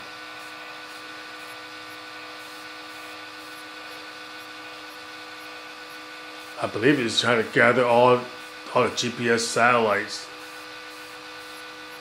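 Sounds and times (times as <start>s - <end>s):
telescope motors whining: 0.0s - 12.0s.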